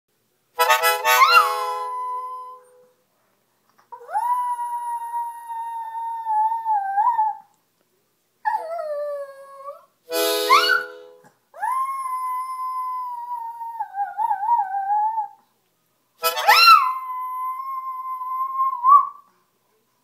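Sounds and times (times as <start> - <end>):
harmonica chords: 0.6 - 2.9, 10.1 - 11.2, 16.2 - 16.8.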